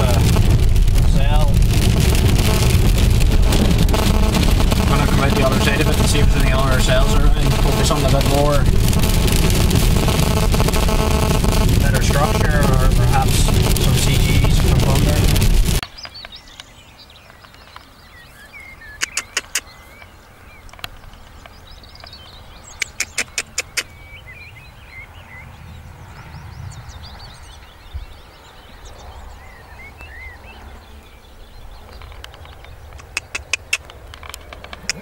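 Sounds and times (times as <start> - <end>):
low rumble: 0.0 - 15.8
sharp clicks: 0.0 - 16.7, 19.0 - 19.7, 22.8 - 23.9, 31.9 - 35.0
small birds chirping: 1.0 - 35.0.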